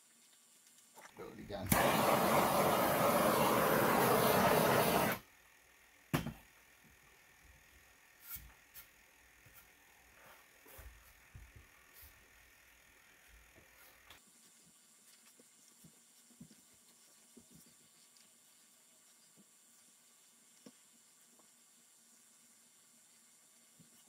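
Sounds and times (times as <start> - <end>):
loud rushing hiss: 1.7 - 5.2.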